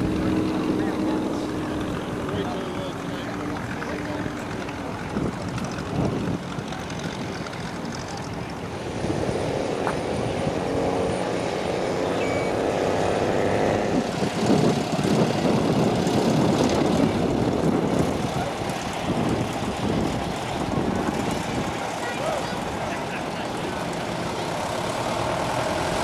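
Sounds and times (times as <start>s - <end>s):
propeller aircraft engine running: 0.0s - 26.0s.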